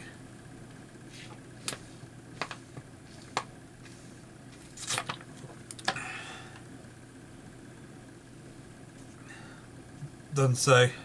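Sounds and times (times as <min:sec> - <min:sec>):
faint steady hum: 0:00.0 - 0:11.0
trading cards clicking and tapping: 0:02.4 - 0:02.6.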